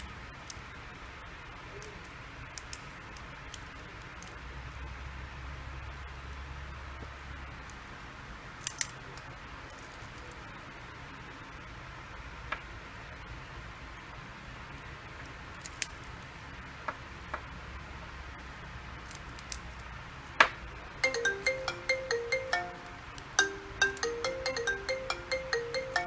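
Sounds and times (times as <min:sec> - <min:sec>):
bell-like ringtone melody: 0:21.0 - 0:26.0.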